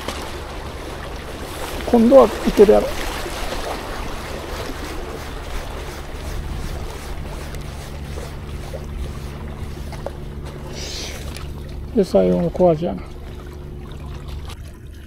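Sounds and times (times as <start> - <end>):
wind on microphone: 0.0 - 11.4
waves washing: 0.0 - 14.6
low steady hum: 0.0 - 15.0.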